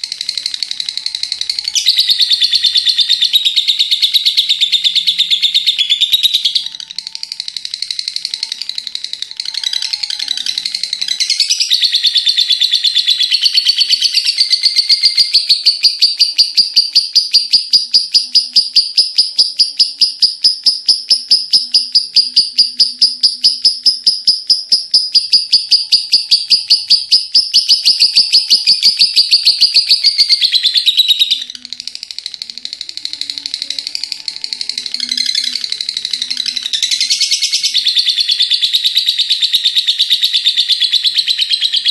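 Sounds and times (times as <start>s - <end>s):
lovebird chattering trill: 0.0s - 41.9s.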